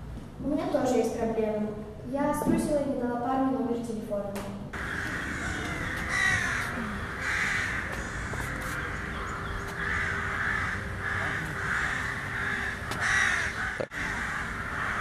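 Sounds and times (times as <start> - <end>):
crows cawing: 4.8 - 15.0.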